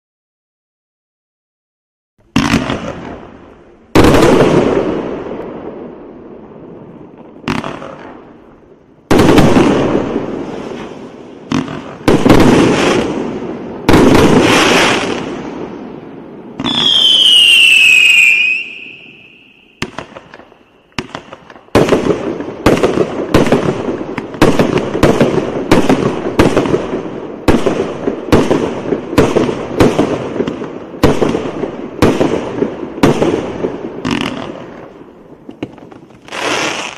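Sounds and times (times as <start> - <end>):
firework shots: 2.2 - 36.9
falling firework whistle: 16.6 - 20.7.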